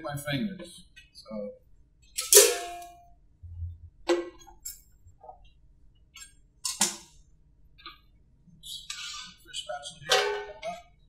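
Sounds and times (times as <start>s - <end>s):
metal utensils clinking: 2.2s - 2.9s, 6.6s - 7.0s, 10.0s - 10.7s.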